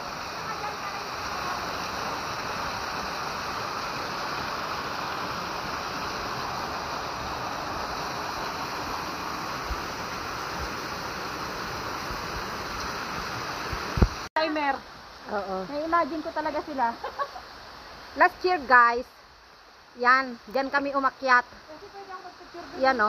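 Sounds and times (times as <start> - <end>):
waterfall rushing: 0.0 - 15.0
heavy rain falling: 0.0 - 18.9
mountain stream: 0.0 - 23.0.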